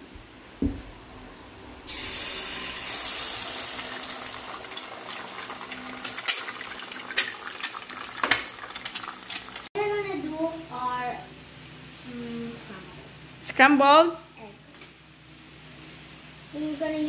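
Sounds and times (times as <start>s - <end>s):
low thump: 0.6s - 0.9s
egg sizzling in hot oil: 1.9s - 9.7s.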